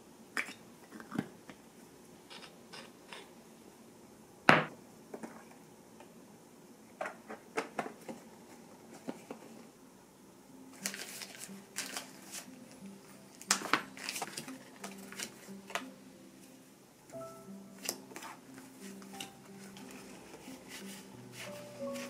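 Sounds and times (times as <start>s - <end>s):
soft background music: 10.0s - 22.0s
postcards rustling: 10.7s - 15.8s, 17.8s - 22.0s.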